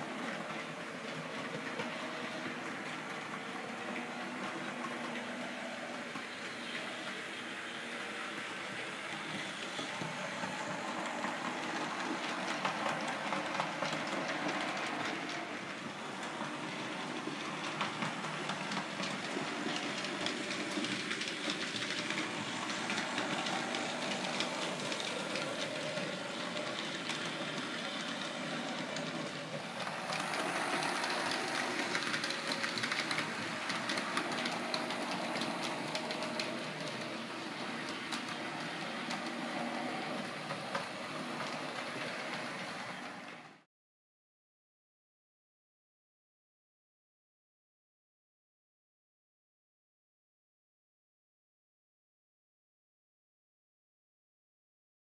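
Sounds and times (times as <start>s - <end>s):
model train running on track: 0.0s - 43.6s.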